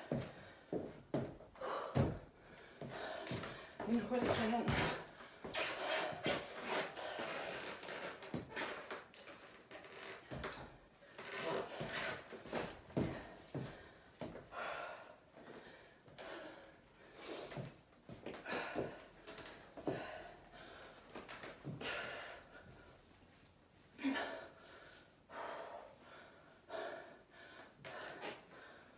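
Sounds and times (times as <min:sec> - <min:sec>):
person breathing hard: 0:00.0 - 0:03.8, 0:11.2 - 0:23.0, 0:24.0 - 0:28.9
movement on wooden floor: 0:00.0 - 0:14.6, 0:17.3 - 0:23.0.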